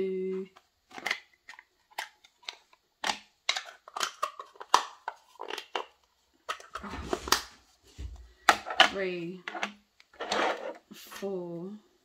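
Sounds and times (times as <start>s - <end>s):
plastic pieces clicking: 0.5s - 7.5s.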